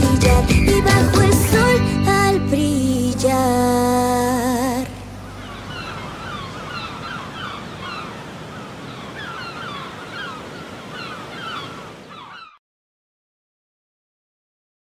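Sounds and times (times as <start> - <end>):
waves washing: 3.6 - 12.5
birds calling: 5.2 - 12.6.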